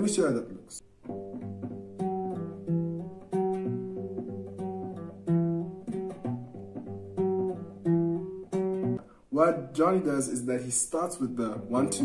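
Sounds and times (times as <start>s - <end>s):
classical guitar bass riff: 0.8s - 9.0s, 11.2s - 12.0s.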